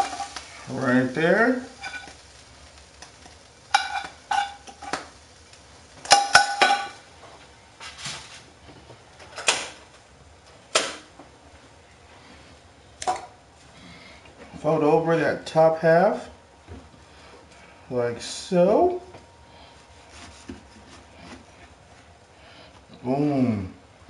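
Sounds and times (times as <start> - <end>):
frying pan and spatula clanking: 0.0 - 0.5, 1.7 - 2.3, 3.2 - 5.2, 5.9 - 7.1.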